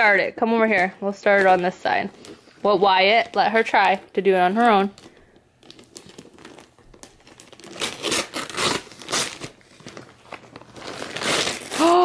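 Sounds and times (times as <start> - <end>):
wrapping paper crinkling and tearing: 4.6 - 12.0.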